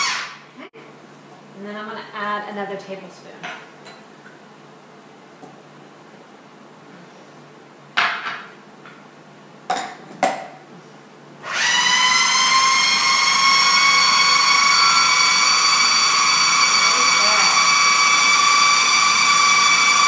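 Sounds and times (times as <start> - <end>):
food processor motor whining: 0.0 - 0.4, 11.4 - 20.0.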